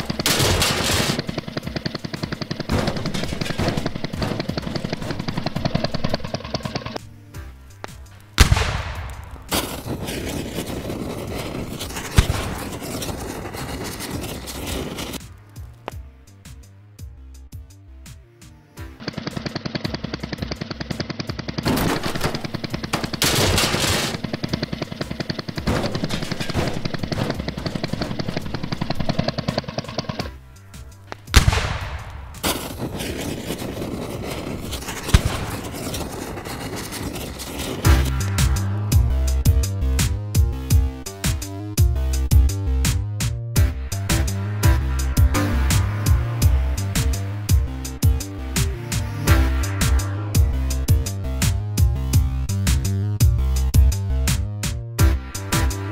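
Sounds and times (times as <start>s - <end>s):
rapid rattle of clicks: 0.0s - 7.0s, 19.0s - 31.6s
crackling fire: 0.0s - 17.5s, 18.9s - 42.3s
explosion blast: 31.3s - 33.8s.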